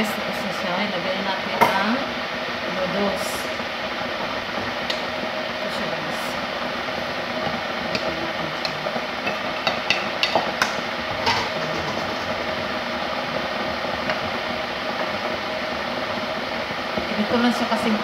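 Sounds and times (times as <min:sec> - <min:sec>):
steady background hum: 0:00.0 - 0:18.0.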